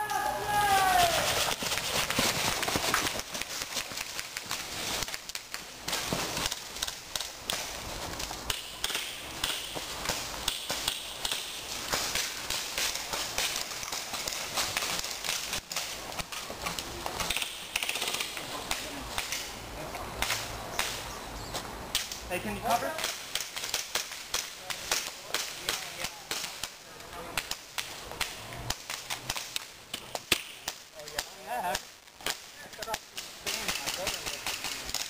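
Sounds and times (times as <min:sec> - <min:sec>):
faint shouts: 0:00.0 - 0:01.4
airsoft pistols popping: 0:08.4 - 0:16.4, 0:17.2 - 0:19.5, 0:22.9 - 0:26.8, 0:27.4 - 0:35.0.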